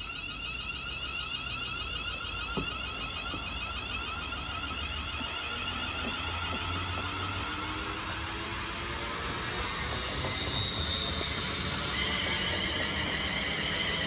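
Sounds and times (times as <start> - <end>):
electric train whine: 0.0 - 14.0
wheels rumbling on rails: 0.0 - 14.0.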